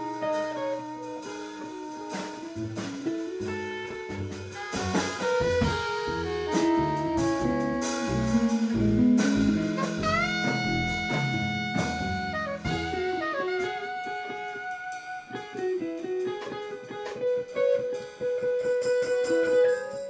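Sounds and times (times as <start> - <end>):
walking bass line: 0.0 - 14.5
drums: 0.0 - 20.0
guitars: 0.0 - 20.0
saxophone: 0.0 - 20.0.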